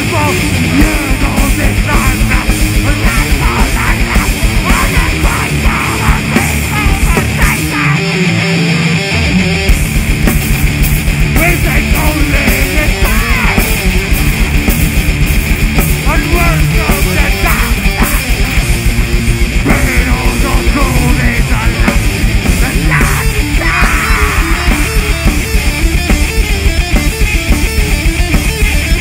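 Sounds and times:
person singing into microphone: 0:00.0 - 0:08.4, 0:11.4 - 0:13.7, 0:16.1 - 0:18.6, 0:19.7 - 0:25.2
heavy metal band playing: 0:00.0 - 0:29.0.

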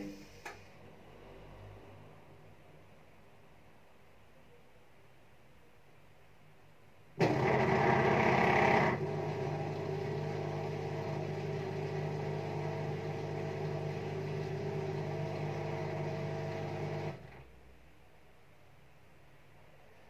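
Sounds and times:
washing machine spinning hum: 0:07.2 - 0:17.8.

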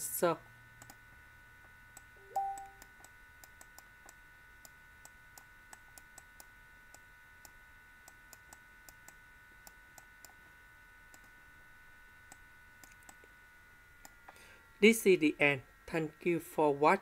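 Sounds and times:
faint electrical hum: 0:00.0 - 0:17.0
brief stepped tone: 0:02.2 - 0:02.8.

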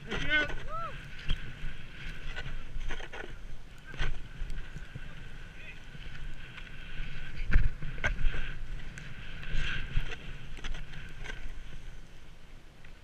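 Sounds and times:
snowboard scraping over snow: 0:00.0 - 0:13.0
wind rumbling on microphone: 0:00.0 - 0:13.0.

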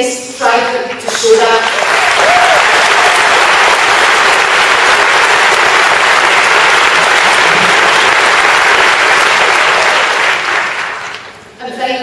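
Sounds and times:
large audience applauding: 0:01.2 - 0:11.4.

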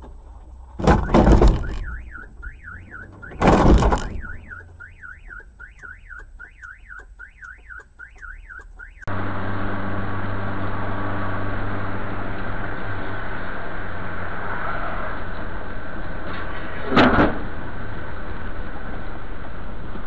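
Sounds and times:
loud crashing impacts: 0:00.8 - 0:04.5
car alarm sweeping: 0:00.8 - 0:09.1.

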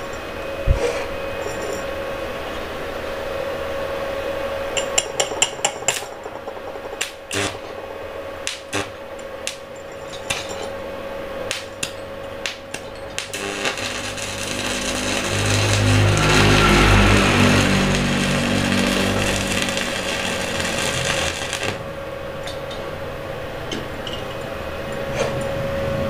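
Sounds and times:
welding arc crackling snaps: 0:05.0 - 0:10.4, 0:11.5 - 0:22.6.

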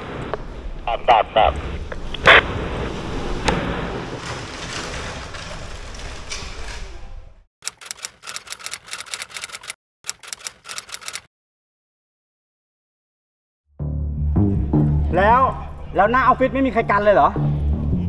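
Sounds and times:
typewriter key clicks: 0:07.7 - 0:11.3.

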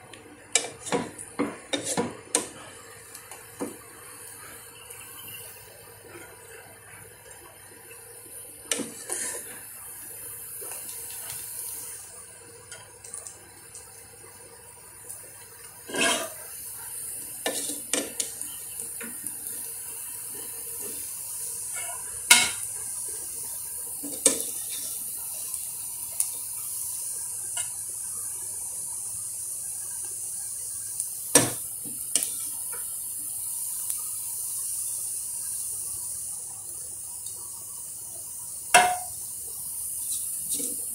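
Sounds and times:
steady hiss: 0:00.0 - 0:40.9
metal skimmer scraping pot: 0:15.9 - 0:16.4.

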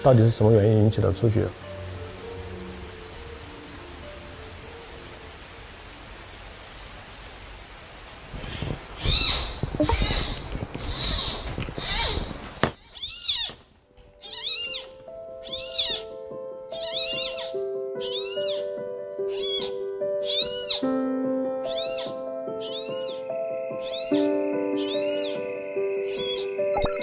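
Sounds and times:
soft background music: 0:00.0 - 0:07.6, 0:12.9 - 0:27.0
panda cub squealing: 0:08.4 - 0:13.6, 0:14.2 - 0:18.7, 0:19.3 - 0:20.9, 0:21.6 - 0:26.6.

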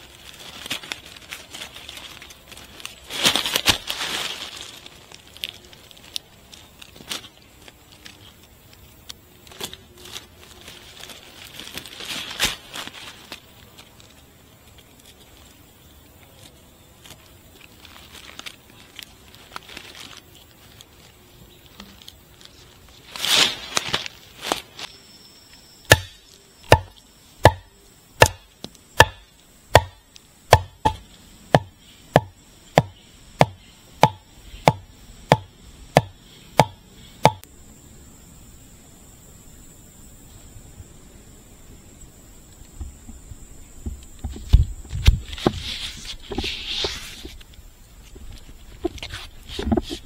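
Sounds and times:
chopping into wood: 0:25.9 - 0:31.0, 0:31.6 - 0:37.4
quiet rustling: 0:42.4 - 0:50.0.

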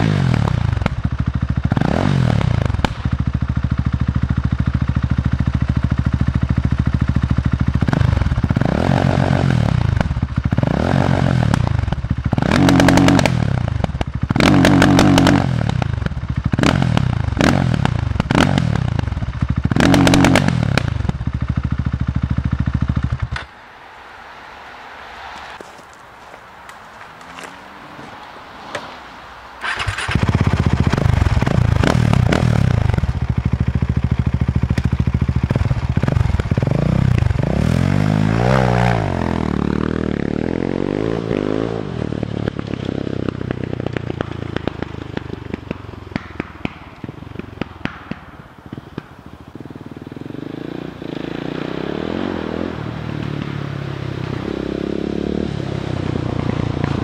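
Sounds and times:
sharp exhaust pops: 0:00.0 - 0:04.0, 0:07.4 - 0:23.6, 0:29.6 - 0:37.6, 0:42.3 - 0:50.2
motorcycle engine revving: 0:00.0 - 0:23.5, 0:29.6 - 0:57.0.

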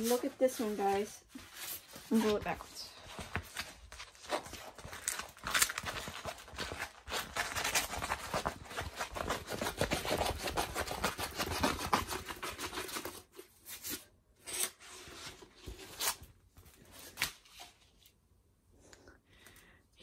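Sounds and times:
plastic film crinkling: 0:03.3 - 0:09.2.

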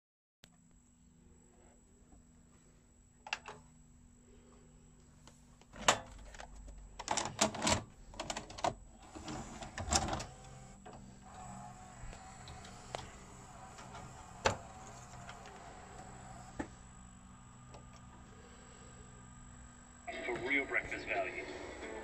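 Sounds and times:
low steady hum: 0:00.5 - 0:22.0
tape mechanism clicks and clunks: 0:05.6 - 0:18.5.

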